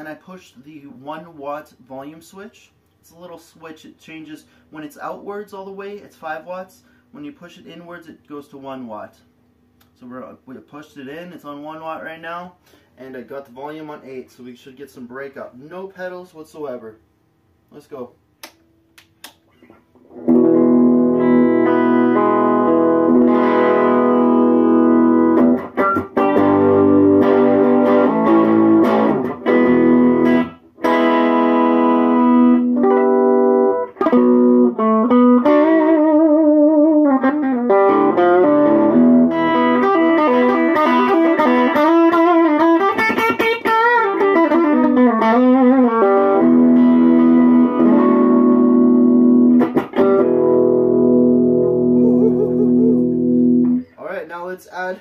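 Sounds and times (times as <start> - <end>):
electric guitar playing blues: 20.0 - 53.9.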